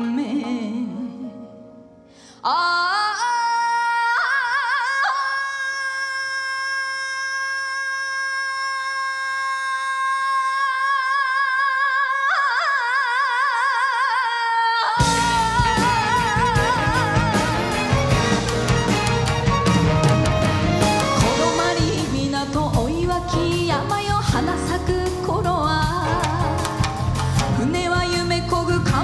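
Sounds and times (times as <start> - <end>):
band playing: 15.0 - 29.0.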